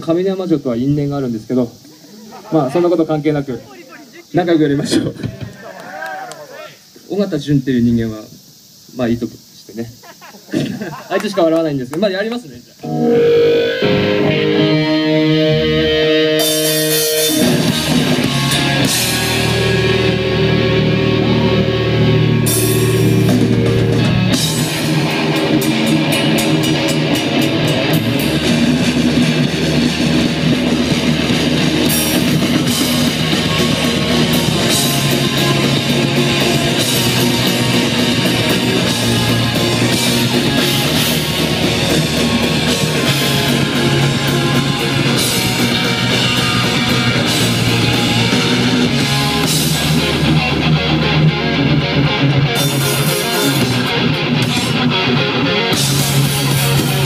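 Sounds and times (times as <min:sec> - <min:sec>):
electric guitars: 0:12.6 - 0:57.0
drum kit: 0:13.0 - 0:57.0.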